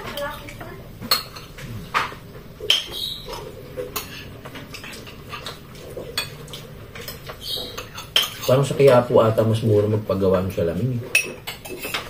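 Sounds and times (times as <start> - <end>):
cutlery clinking on plates: 1.0 - 9.1, 11.1 - 12.0.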